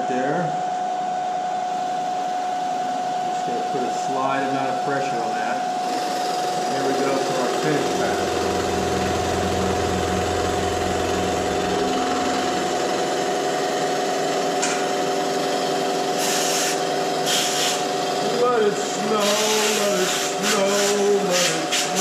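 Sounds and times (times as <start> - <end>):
milling machine spindle whine: 0.0 - 22.0
end mill cutting metal: 5.1 - 22.0
low hum: 6.7 - 14.9.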